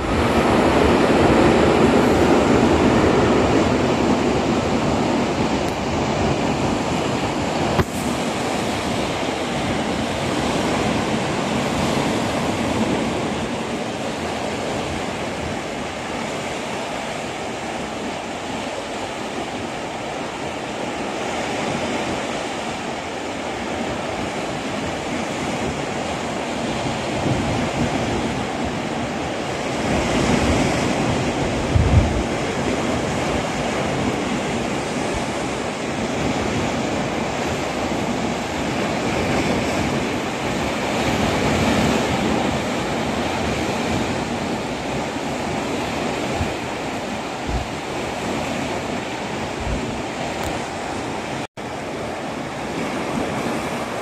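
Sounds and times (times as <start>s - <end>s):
wind on microphone: 0.0s - 54.0s
low thump from wind gust: 47.4s - 47.8s.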